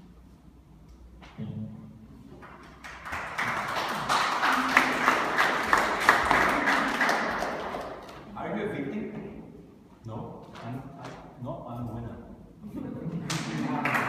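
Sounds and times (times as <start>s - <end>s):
audience clapping: 2.4s - 8.3s, 13.2s - 14.0s.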